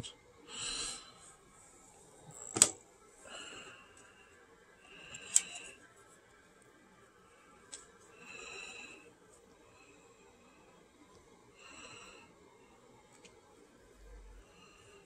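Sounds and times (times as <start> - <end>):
sharp plastic clicks: 2.4 - 2.8.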